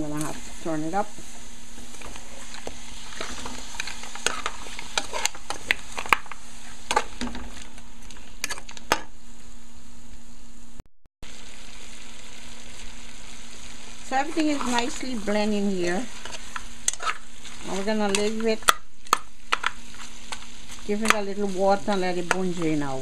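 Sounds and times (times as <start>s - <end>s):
meat sizzling in oil: 0.0s - 8.9s, 11.2s - 23.0s
metal spoon scraping pot: 16.2s - 19.7s.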